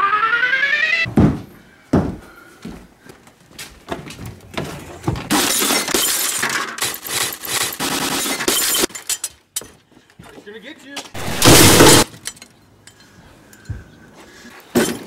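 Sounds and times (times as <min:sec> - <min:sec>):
thumps on wooden deck: 0:01.1 - 0:02.2
glass shattering: 0:05.3 - 0:09.3, 0:11.2 - 0:12.4.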